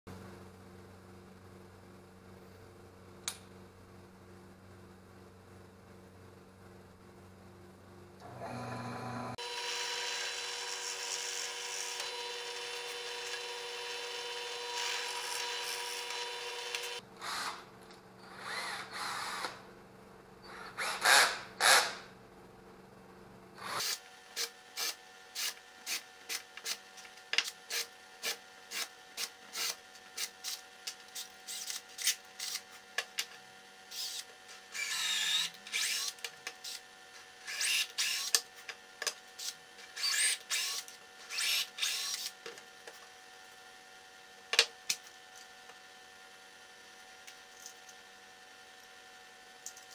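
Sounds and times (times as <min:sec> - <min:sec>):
cordless drill whirring: 0:08.2 - 0:17.6, 0:18.3 - 0:19.6, 0:33.9 - 0:36.8, 0:37.4 - 0:38.4, 0:39.4 - 0:42.4
drill press boring into plywood: 0:08.2 - 0:17.6, 0:33.9 - 0:36.8, 0:37.4 - 0:38.4, 0:39.4 - 0:42.4.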